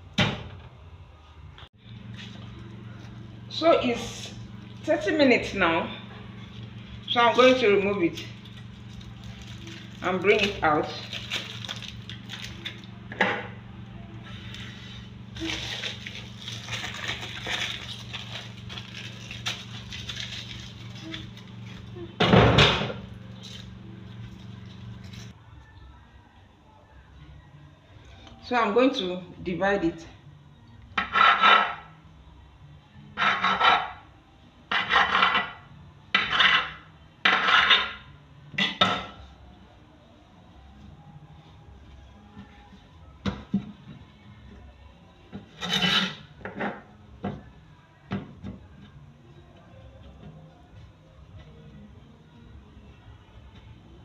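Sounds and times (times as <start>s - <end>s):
steady low hum: 0.9s - 28.4s
aluminium foil crinkling: 6.3s - 13.0s, 14.2s - 22.1s
knife scraping across table: 31.0s - 31.9s, 33.2s - 34.0s, 34.7s - 35.6s, 36.2s - 38.0s, 45.5s - 46.8s.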